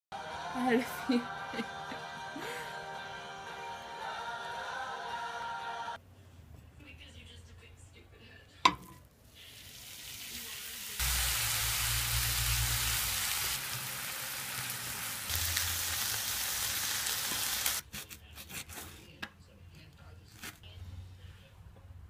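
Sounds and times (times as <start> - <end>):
beef sizzling in a frying pan: 9.3 - 17.8.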